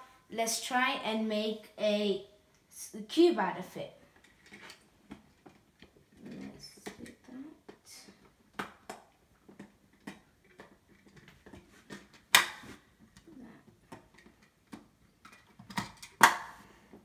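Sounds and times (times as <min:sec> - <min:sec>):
sharp plastic clacks: 0:04.2 - 0:16.6.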